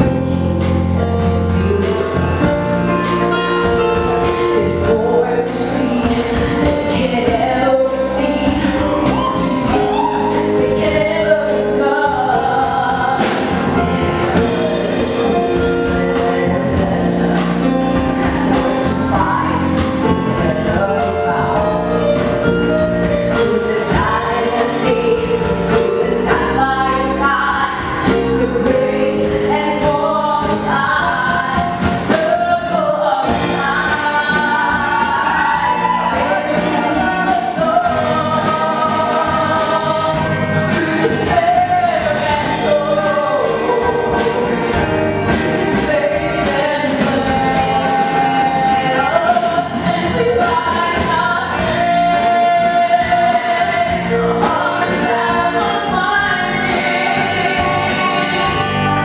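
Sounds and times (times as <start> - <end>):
bass guitar: 0.0 - 59.0
drum kit: 0.0 - 59.0
keyboard: 0.0 - 59.0
woman singing: 0.0 - 59.0.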